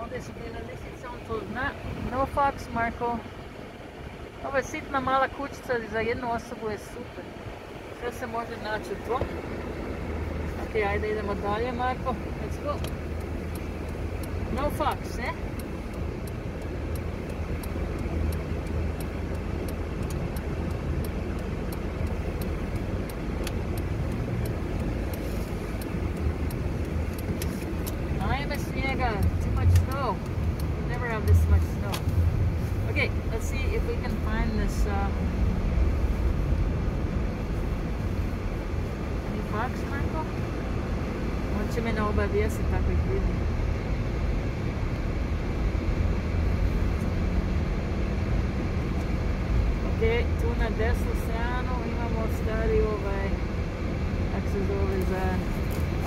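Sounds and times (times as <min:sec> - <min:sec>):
car engine and road rumble: 0:00.0 - 0:56.0
faint regular ticking: 0:00.2 - 0:42.8.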